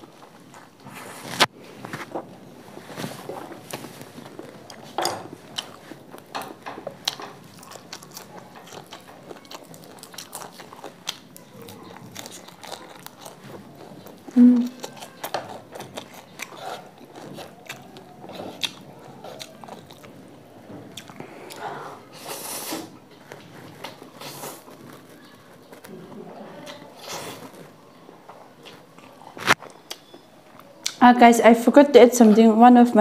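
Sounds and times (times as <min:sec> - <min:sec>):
crunchy bites and chewing: 0:06.8 - 0:21.6
person humming low: 0:14.4 - 0:14.8.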